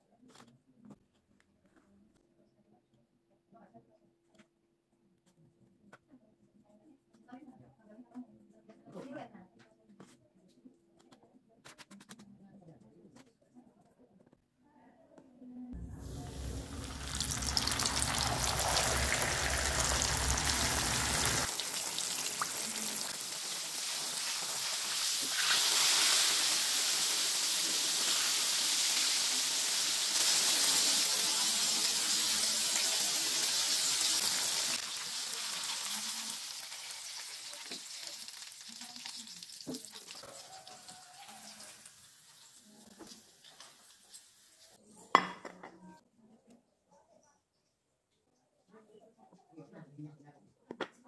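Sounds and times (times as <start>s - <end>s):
low rumble: 15.8s - 21.5s
fish sizzling in hot oil: 15.8s - 44.8s.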